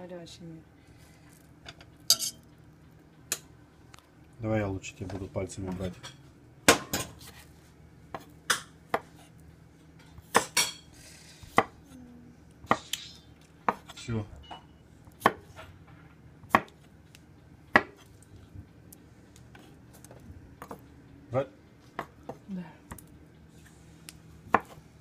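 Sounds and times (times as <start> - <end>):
knife chopping on wooden board: 8.1 - 9.2, 10.3 - 10.7, 11.5 - 11.8, 13.7 - 14.0, 15.2 - 15.6, 16.5 - 16.9, 17.7 - 18.1, 24.5 - 24.8.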